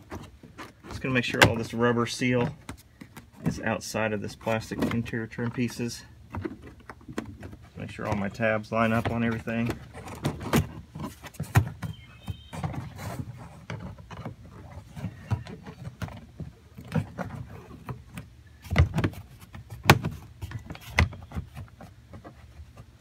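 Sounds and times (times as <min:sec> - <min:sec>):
plastic trim clicks and creaks: 0:04.3 - 0:19.2.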